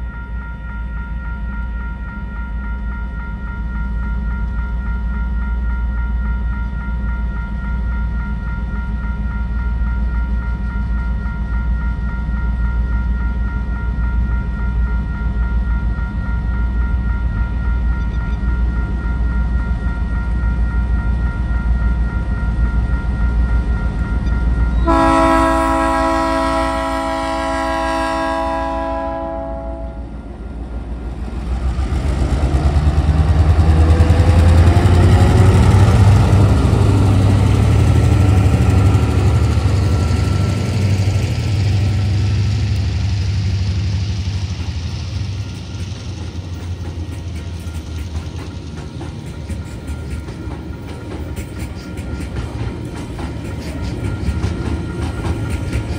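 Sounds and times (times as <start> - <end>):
locomotive engine rumble: 10.1 - 55.9
locomotive horn chord: 24.8 - 30.2.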